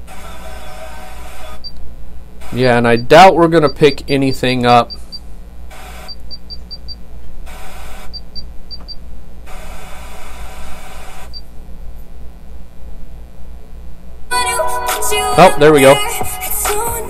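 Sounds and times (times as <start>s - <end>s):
radio static hiss: 0.0s - 1.6s, 2.2s - 6.2s, 7.4s - 8.1s, 9.4s - 11.3s, 14.9s - 17.0s.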